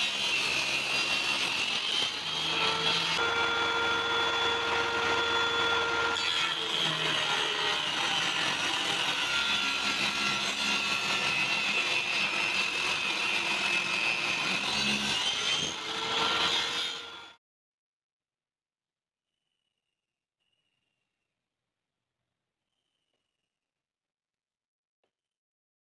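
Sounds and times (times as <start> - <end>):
table saw cutting wood: 0.0 - 17.4.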